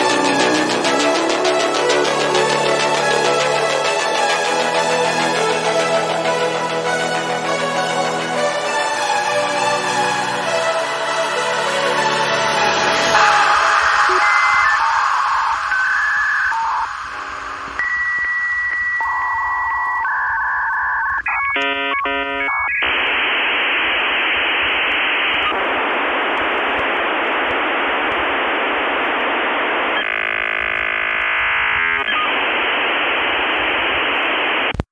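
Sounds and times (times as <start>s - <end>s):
static hiss: 11.9s - 34.9s
pulsing chord-like warble: 12.0s - 16.4s
steady electronic beeps: 12.6s - 23.0s.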